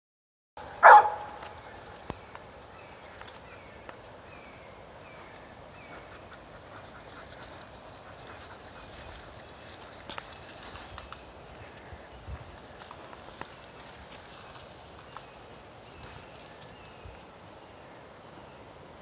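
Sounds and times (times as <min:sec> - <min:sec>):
low background hiss: 0:01.4 - 0:19.0.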